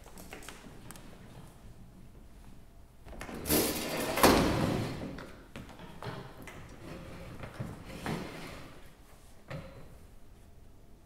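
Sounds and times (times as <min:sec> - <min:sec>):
metal chair scraping on boards: 0:03.4 - 0:05.2, 0:06.8 - 0:08.9.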